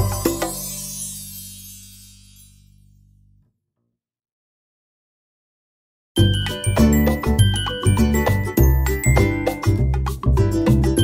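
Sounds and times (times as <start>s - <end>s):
music with pulsing bass beat: 6.2s - 11.0s.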